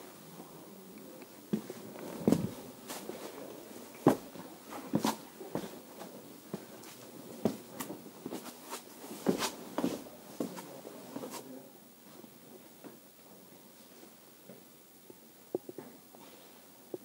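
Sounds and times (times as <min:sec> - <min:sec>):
footsteps on stone steps: 0:01.5 - 0:03.3, 0:04.0 - 0:04.3.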